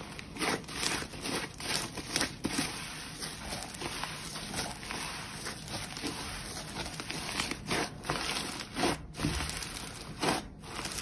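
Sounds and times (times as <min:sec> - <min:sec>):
slime crackling and squelching: 0:00.0 - 0:11.0.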